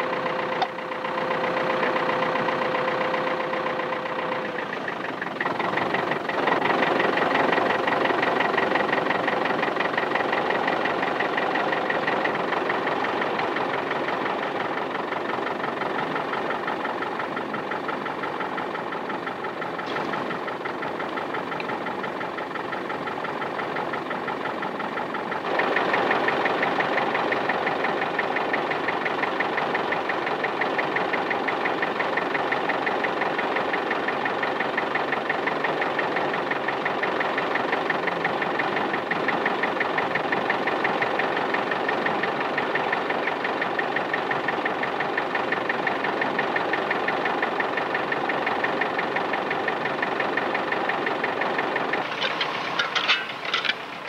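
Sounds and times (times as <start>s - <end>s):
tractor engine running: 0.0s - 54.0s.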